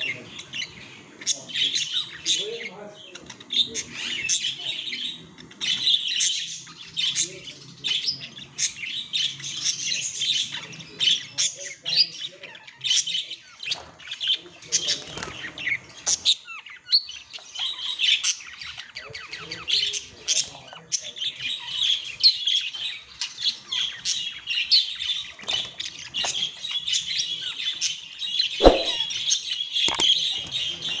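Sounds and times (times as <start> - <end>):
budgerigar warbling: 28.6 - 29.0.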